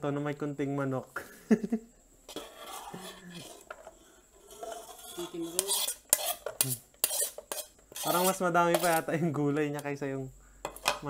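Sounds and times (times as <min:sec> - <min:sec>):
metal spoon scraping a bowl: 0:02.3 - 0:09.1, 0:10.6 - 0:11.0.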